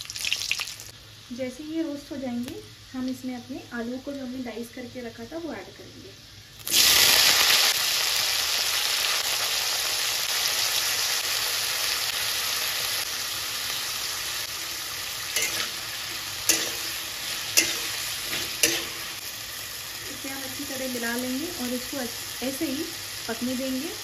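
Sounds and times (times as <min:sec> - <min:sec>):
potatoes sizzling in hot oil: 0:00.0 - 0:24.0
spatula scraping pan: 0:15.4 - 0:19.2.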